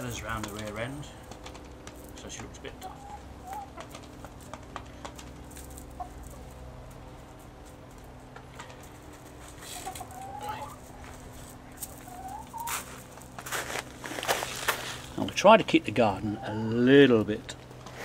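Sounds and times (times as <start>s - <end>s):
hens clucking: 0.0s - 18.0s.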